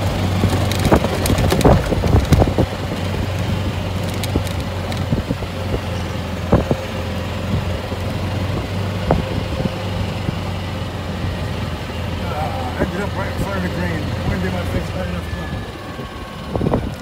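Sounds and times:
cart knocks and rattles: 0.0s - 6.8s
golf cart running hum: 0.0s - 17.0s.

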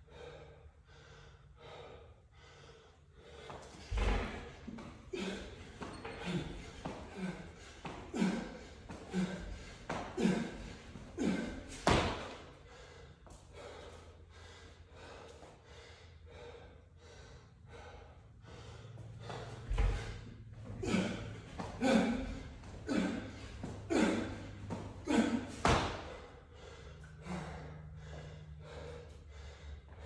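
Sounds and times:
hard breathing: 0.0s - 30.0s
pull-up thuds: 3.8s - 8.4s, 9.0s - 12.5s, 20.8s - 26.3s
jump rope slapping floor: 6.6s - 12.5s, 20.9s - 26.3s.

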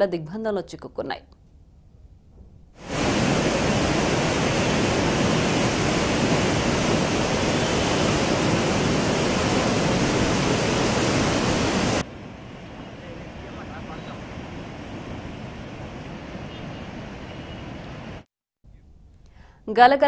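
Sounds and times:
floodwater rushing through spillway: 2.8s - 12.1s.

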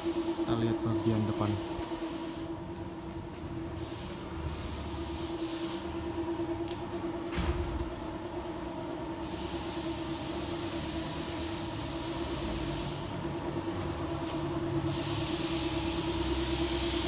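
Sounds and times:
spray gun hissing: 0.0s - 2.6s, 3.8s - 5.9s, 9.2s - 13.1s, 14.9s - 17.0s
machine hum: 5.8s - 14.9s.

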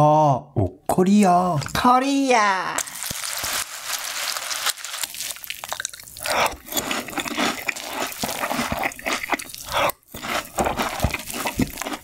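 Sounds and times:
chewing crunchy cereal: 2.8s - 12.0s
milk poured onto cereal: 2.9s - 6.3s
spoon scooping cereal: 2.9s - 12.0s.

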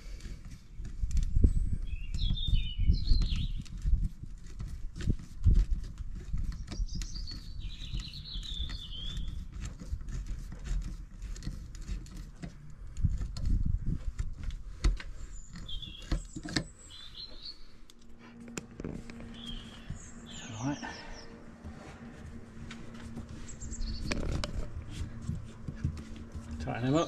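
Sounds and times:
small birds chirping: 0.0s - 4.1s, 6.2s - 9.9s, 14.8s - 18.5s, 19.1s - 27.0s
uneven low rumble: 18.0s - 27.0s.

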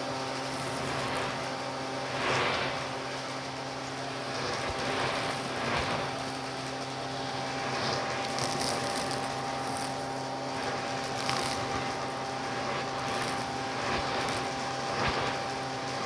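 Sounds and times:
debris rattling up hose: 0.0s - 16.0s
vacuum cleaner motor whine: 0.0s - 16.0s.

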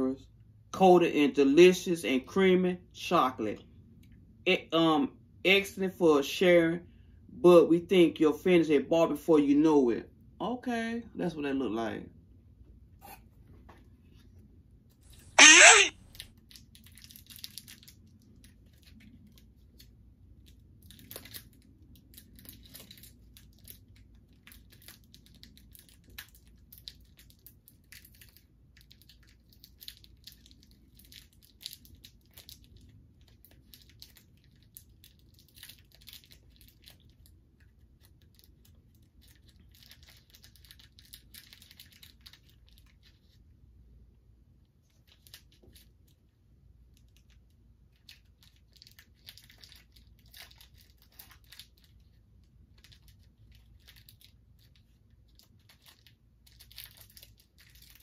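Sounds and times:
wrapper crinkling and tearing: 15.4s - 43.4s, 44.8s - 46.2s, 46.9s - 58.0s.

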